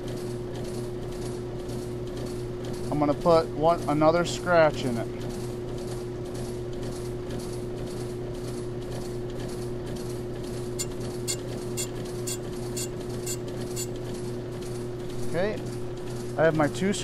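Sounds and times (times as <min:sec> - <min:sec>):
brake lathe humming: 0:09.4 - 0:14.3
cutting bit ticking on drum: 0:10.8 - 0:14.0.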